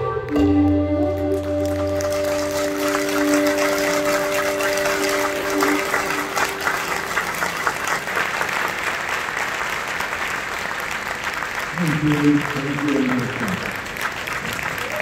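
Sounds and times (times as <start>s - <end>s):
music held notes: 0.0s - 7.6s
audience applauding: 0.3s - 15.0s.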